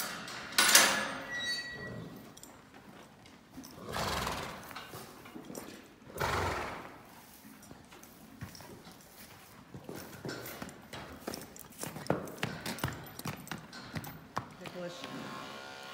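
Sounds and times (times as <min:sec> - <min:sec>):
horse neighing: 0:03.8 - 0:04.7, 0:06.1 - 0:07.0
short noisy horse sounds: 0:06.1 - 0:07.1.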